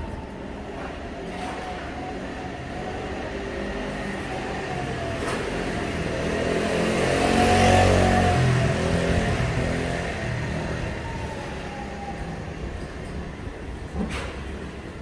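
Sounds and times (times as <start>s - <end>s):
vehicle engine hum passing: 3.5s - 11.2s.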